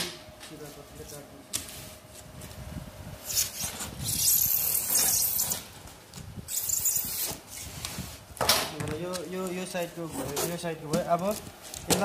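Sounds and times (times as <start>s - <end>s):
hand cutter scraping foam panel: 3.3s - 5.7s.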